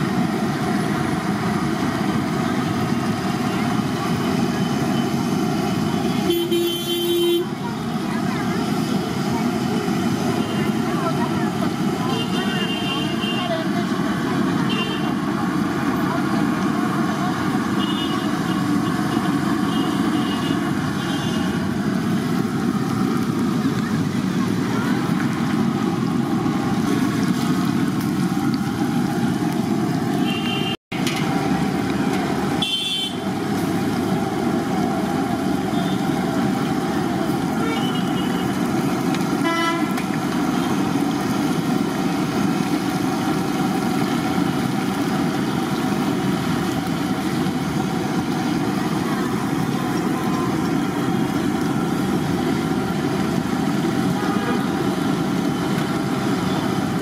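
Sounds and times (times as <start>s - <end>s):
fritters deep-frying in oil: 0.0s - 57.0s
short vehicle horns: 6.1s - 7.5s, 17.7s - 21.6s, 30.2s - 30.8s, 32.6s - 33.3s, 37.6s - 38.6s, 39.4s - 40.0s.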